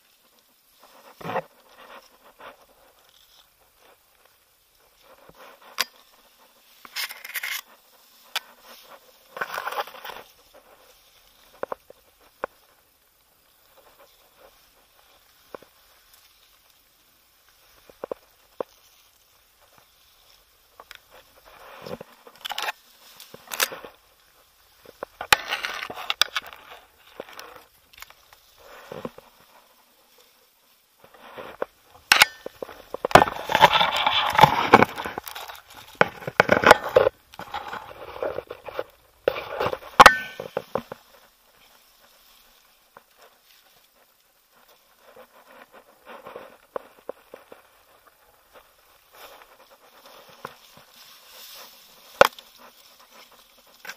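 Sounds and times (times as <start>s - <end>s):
leaves and branches rustling: 0.0s - 53.9s
twigs snapping: 21.9s - 24.0s.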